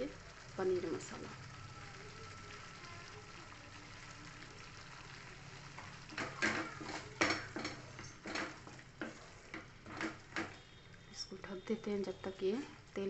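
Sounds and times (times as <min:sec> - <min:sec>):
gravy sizzling faintly: 0:00.0 - 0:13.0
wooden spatula scraping pan: 0:06.1 - 0:10.6.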